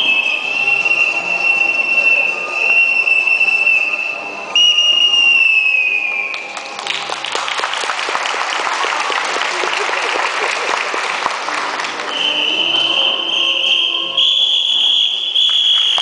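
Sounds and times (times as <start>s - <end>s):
long high whistle tone: 0.0s - 6.5s, 12.1s - 16.0s
audience clapping: 6.2s - 12.5s, 15.4s - 16.0s.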